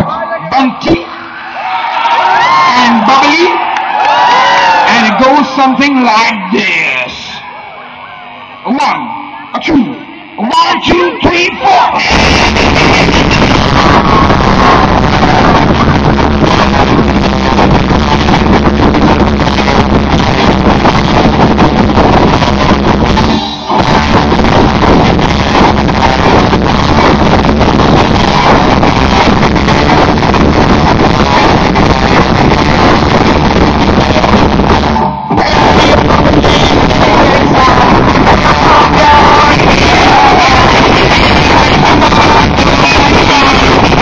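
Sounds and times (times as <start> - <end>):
guitars: 7.1 - 44.0
drums: 11.9 - 44.0
rock band playing live: 11.9 - 44.0.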